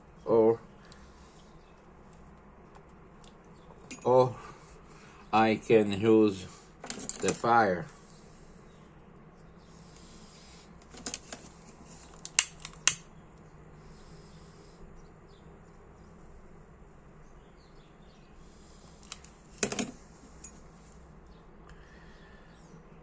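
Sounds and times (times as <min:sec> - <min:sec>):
metal parts and tools clicking: 0:06.8 - 0:07.4, 0:19.0 - 0:20.6.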